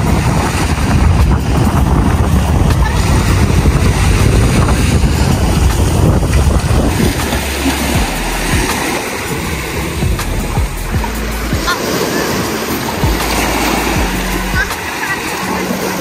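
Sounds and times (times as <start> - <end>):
boat engine running: 0.0 - 16.0
water rushing: 0.0 - 16.0
wind buffeting microphone: 0.0 - 16.0.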